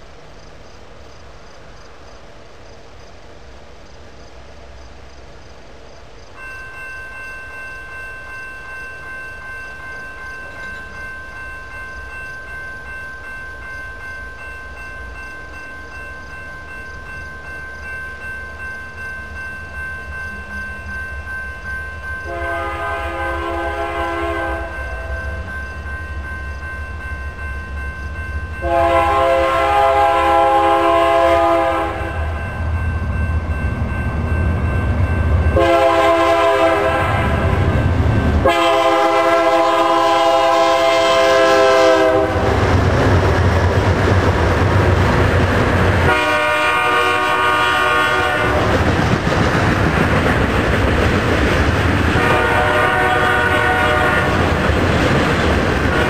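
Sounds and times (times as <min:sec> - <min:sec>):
freight train rumble: 0:00.0 - 0:56.0
steady high tones: 0:06.2 - 0:40.1
locomotive air horn blast: 0:22.3 - 0:24.7, 0:28.6 - 0:32.3, 0:35.6 - 0:37.8, 0:38.4 - 0:42.6, 0:46.0 - 0:48.7, 0:52.1 - 0:54.4.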